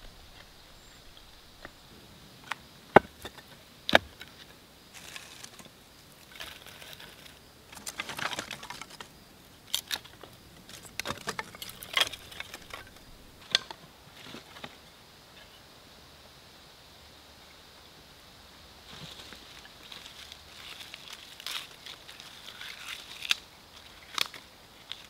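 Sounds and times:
rustling wood shavings: 4.9s - 13.4s, 18.8s - 25.0s
wooden sticks clacking: 9.7s - 13.8s.

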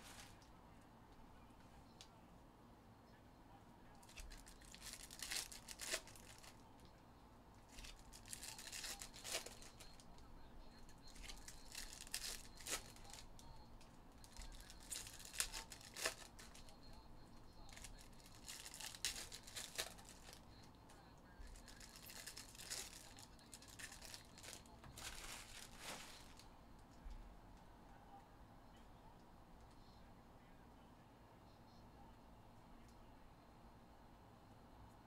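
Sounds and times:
foil card wrappers tearing: 4.0s - 6.6s, 7.7s - 10.0s, 11.1s - 13.3s, 14.4s - 16.6s, 17.7s - 20.4s, 21.5s - 26.4s.

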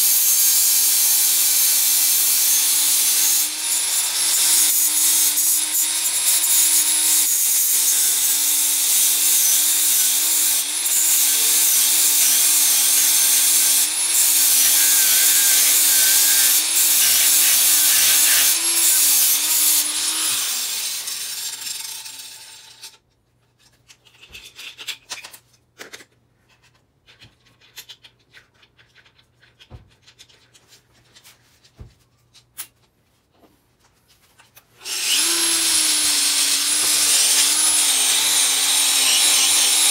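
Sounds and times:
angle grinder grinding metal: 0.0s - 23.0s, 34.8s - 39.9s.

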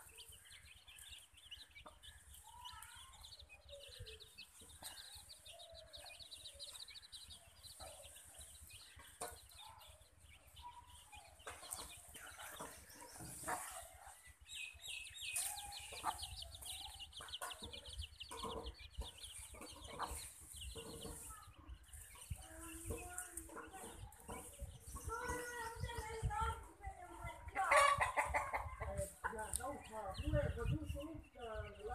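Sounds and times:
chicks peeping: 0.0s - 31.9s
hen clucking: 6.8s - 14.4s, 15.3s - 25.5s, 27.4s - 31.0s.

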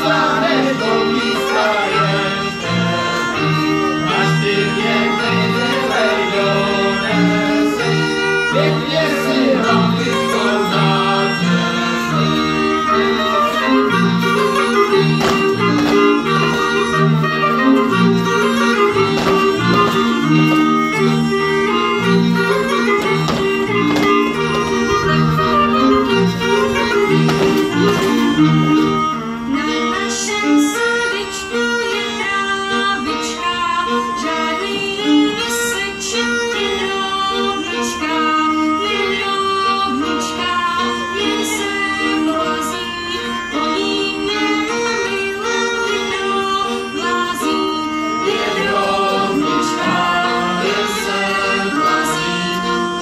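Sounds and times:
fiddle melody: 0.0s - 53.0s
folk band dance music: 0.0s - 53.0s
bass line: 14.4s - 29.1s.

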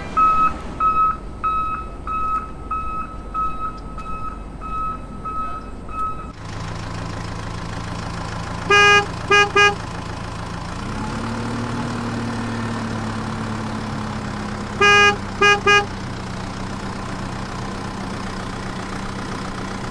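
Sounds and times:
truck engine running: 0.0s - 19.9s
vehicle horn honking: 8.6s - 9.9s, 14.8s - 16.0s.

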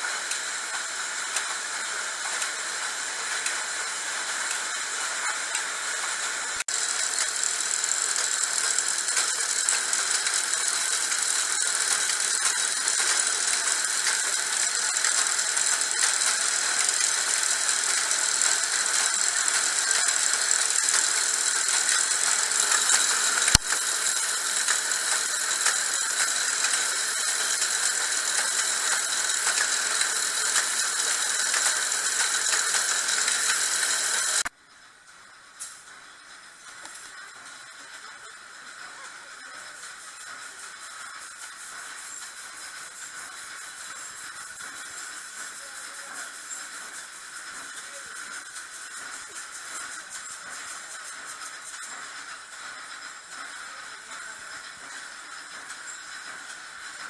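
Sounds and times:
machines clattering and rattling: 0.0s - 34.5s, 35.5s - 57.0s
sharp click: 22.7s - 23.9s.

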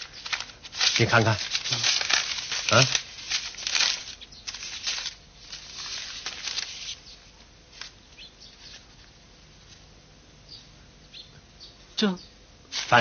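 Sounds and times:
paper rustling: 0.0s - 9.9s, 12.7s - 13.0s.

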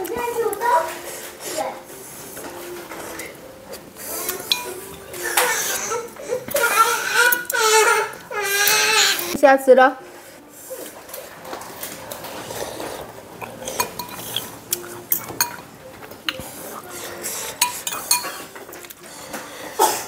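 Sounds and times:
cutlery clinking on ceramic bowl: 4.4s - 5.6s, 13.4s - 16.5s, 17.4s - 19.0s.

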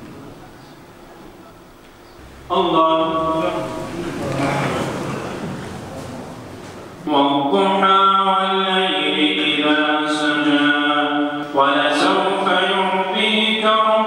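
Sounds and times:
man chanting recitation: 2.2s - 6.4s, 7.0s - 14.0s.

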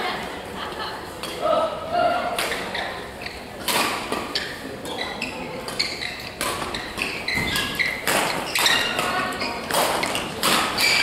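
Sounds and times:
shoes squeaking on court: 2.4s - 11.0s
rackets hitting shuttlecock: 3.6s - 5.0s, 5.7s - 11.0s.

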